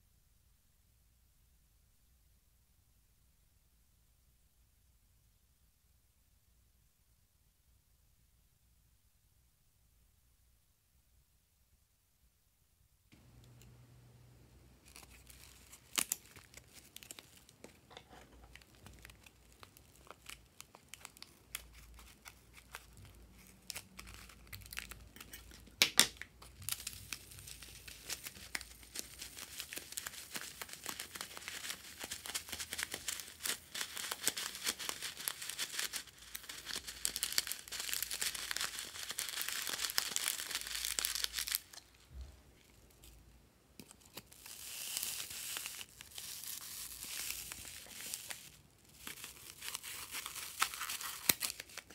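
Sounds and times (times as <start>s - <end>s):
plastic bag crinkling: 14.8s - 25.8s, 26.4s - 42.1s, 43.9s - 51.9s.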